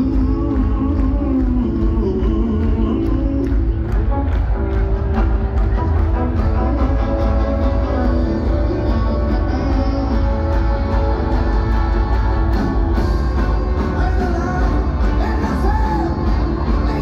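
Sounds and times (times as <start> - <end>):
person singing: 0.0 - 4.3, 5.9 - 17.0
live rock band playing: 0.0 - 17.0.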